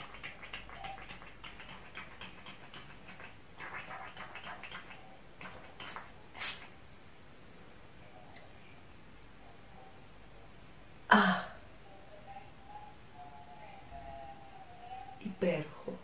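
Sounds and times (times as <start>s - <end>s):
hissing spray of mist: 5.9s - 6.7s.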